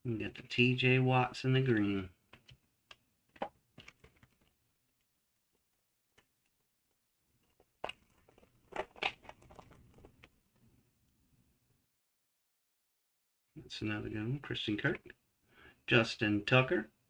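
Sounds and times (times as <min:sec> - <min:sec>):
foil wrapper crinkling and tearing: 0:07.5 - 0:10.3.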